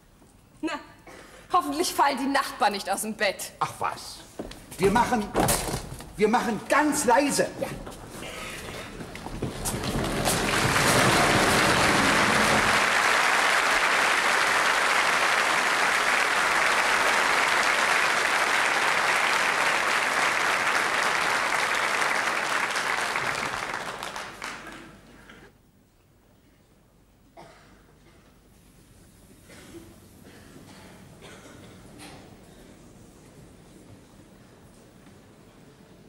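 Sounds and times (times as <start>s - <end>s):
audience applause: 8.5s - 25.2s.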